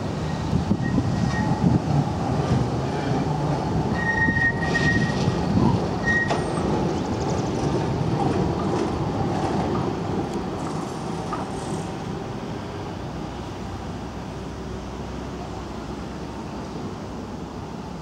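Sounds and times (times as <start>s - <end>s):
tram wheels rumbling on rail: 0.0s - 18.0s
high-pitched wheel squeal: 0.2s - 1.7s, 3.9s - 5.4s, 6.0s - 6.6s.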